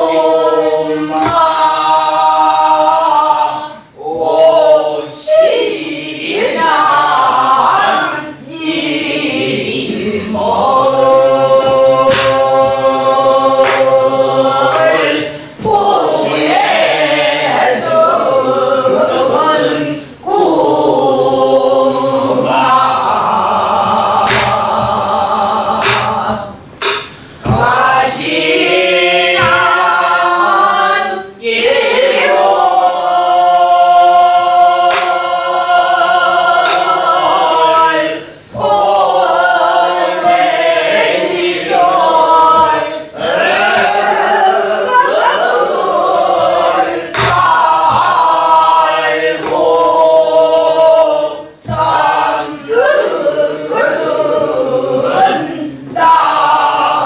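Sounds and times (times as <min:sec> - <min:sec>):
women singing folk song in unison: 0:00.0 - 0:57.0
barrel drum strokes: 0:10.3 - 0:16.9, 0:22.2 - 0:30.7, 0:33.8 - 0:50.8, 0:51.6 - 0:52.4.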